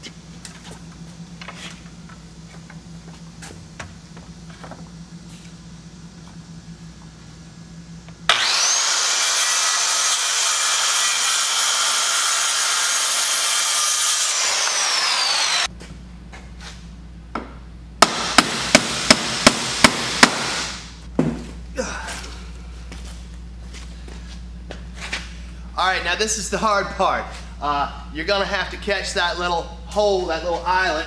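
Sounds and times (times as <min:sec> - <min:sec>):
circular saw whining: 0:07.6 - 0:15.7
hammer driving nails into wood: 0:18.0 - 0:20.7.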